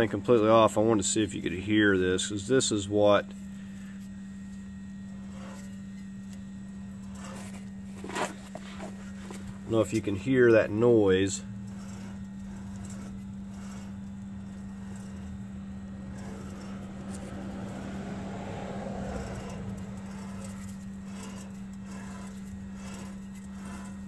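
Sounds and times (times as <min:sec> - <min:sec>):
steady low hum: 0:00.0 - 0:24.0
wheel bearing scraping rumble: 0:00.0 - 0:24.0.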